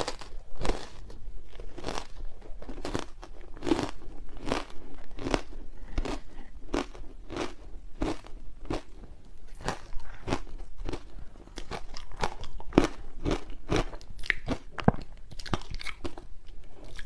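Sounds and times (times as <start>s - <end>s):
ice crunching between teeth: 0.0s - 16.2s.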